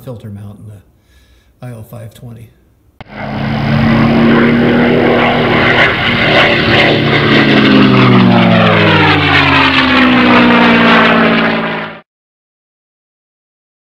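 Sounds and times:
propeller airplane engine: 0:03.0 - 0:12.1.

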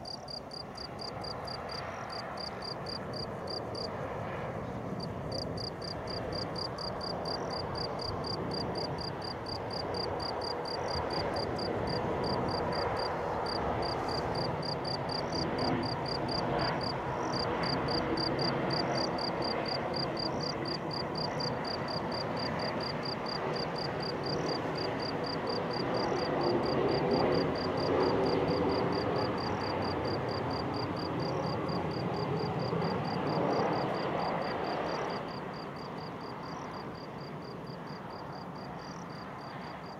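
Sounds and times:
insect chirping rapidly: 0:00.0 - 0:03.9, 0:05.0 - 0:26.3.

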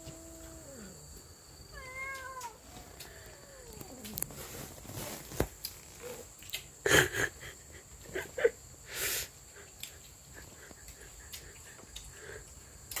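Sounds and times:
cats yowling: 0:00.0 - 0:01.0, 0:01.7 - 0:04.3.

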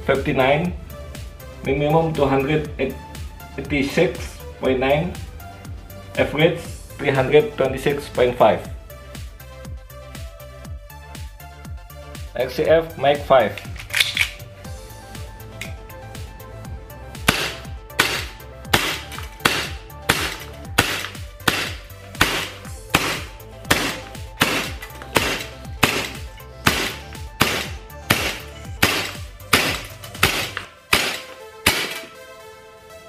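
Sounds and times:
airsoft gun shots: 0:17.3 - 0:32.1.

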